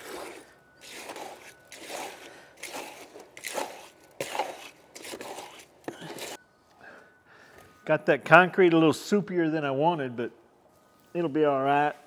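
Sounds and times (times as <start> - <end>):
hands squishing wet concrete: 0.0 - 6.4.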